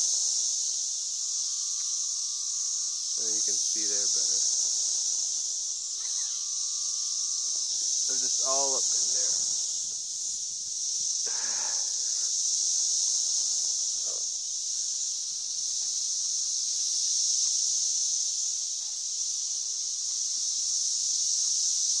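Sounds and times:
cicadas buzzing drone: 0.0 - 22.0.

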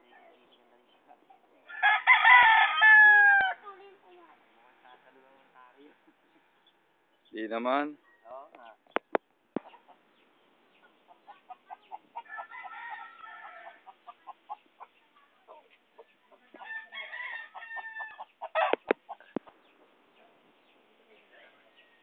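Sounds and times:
roosters clucking: 0.0 - 22.0
rooster crowing: 1.7 - 3.6, 8.0 - 8.5, 12.2 - 13.9, 16.6 - 18.8.

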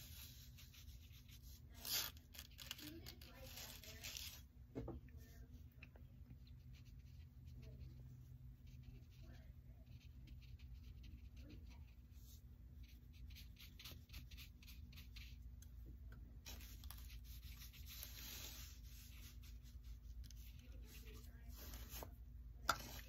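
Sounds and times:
paintbrush stroking paper: 0.0 - 4.5, 6.4 - 15.5, 16.4 - 23.0.

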